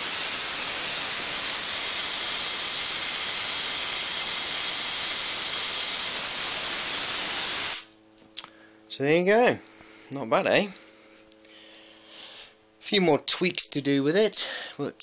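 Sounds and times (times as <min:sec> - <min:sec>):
tesla coil spark hiss: 0:00.0 - 0:08.0.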